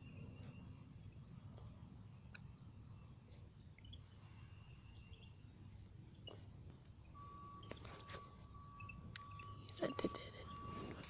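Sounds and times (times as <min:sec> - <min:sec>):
faint high chirps: 0:06.1 - 0:11.0.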